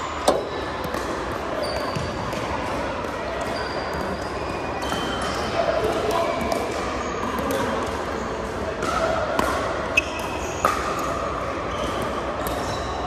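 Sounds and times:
murmur of spectators: 0:00.0 - 0:13.0
sneakers squeaking on court: 0:00.5 - 0:02.4, 0:09.9 - 0:13.0.

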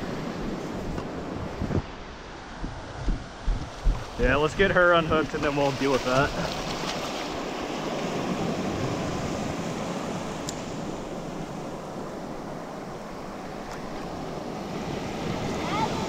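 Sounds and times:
surf washing over sand: 0:00.0 - 0:16.0.

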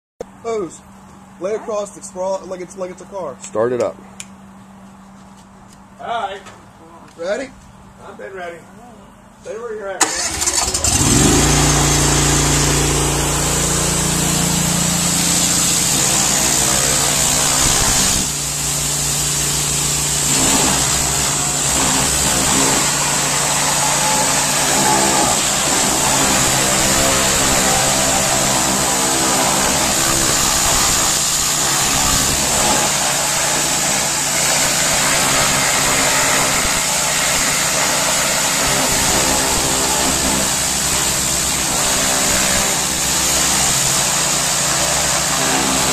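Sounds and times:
high-pressure water jet hiss: 0:10.0 - 0:45.9
pressure washer engine running: 0:10.0 - 0:45.9.

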